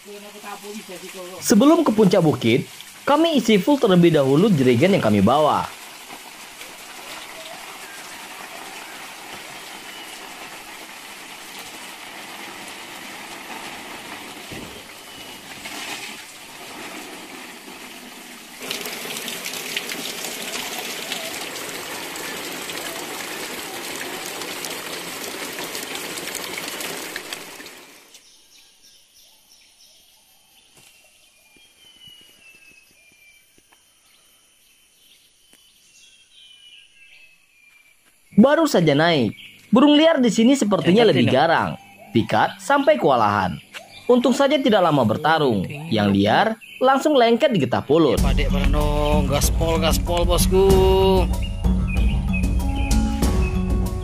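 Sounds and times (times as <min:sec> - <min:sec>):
stream running: 0:00.0 - 0:28.5, 0:38.3 - 0:51.7
birds whistling calls: 0:40.4 - 0:47.1, 0:51.2 - 0:54.0.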